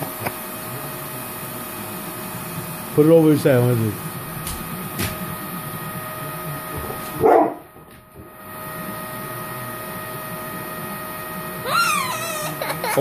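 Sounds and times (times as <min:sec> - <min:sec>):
vacuum cleaner motor hum: 0:00.0 - 0:13.0
dog barking: 0:07.2 - 0:07.7.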